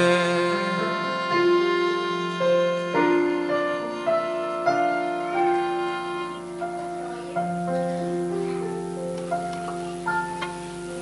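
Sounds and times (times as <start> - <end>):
accordion: 0.0 - 6.7
fiddle: 0.0 - 10.4
piano: 0.0 - 11.0.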